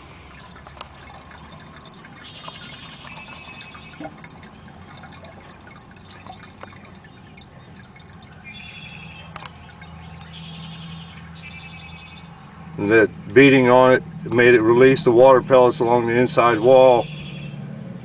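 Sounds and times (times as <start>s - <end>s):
water trickling into plastic jug: 0.0s - 13.6s
water drips: 0.0s - 14.4s.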